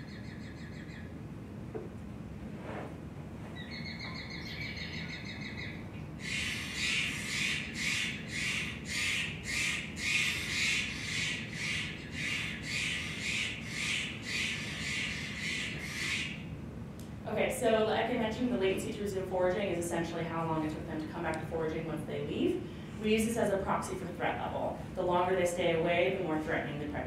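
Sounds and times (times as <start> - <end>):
harsh jay calls: 0.0 - 1.1, 3.6 - 16.5
rapid pulsed bird call: 0.0 - 1.1, 3.6 - 16.5.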